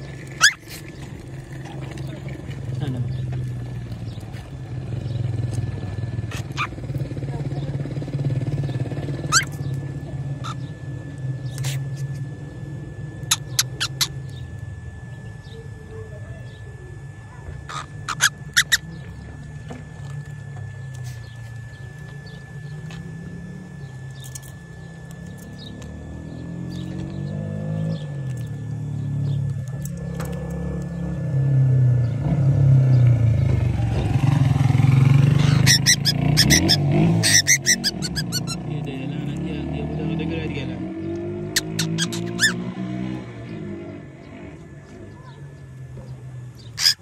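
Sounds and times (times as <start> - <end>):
road traffic rumble: 0.0 - 47.0
vehicle engine rising in pitch: 0.0 - 47.0
cockatiel chirping: 0.4 - 0.8, 9.2 - 9.8, 13.2 - 14.4, 17.7 - 19.1, 35.4 - 38.6, 41.5 - 42.6, 46.6 - 47.0.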